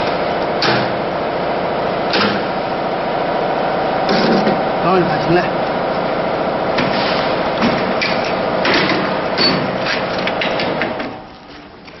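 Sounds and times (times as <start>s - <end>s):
machine hum: 0.0s - 12.0s.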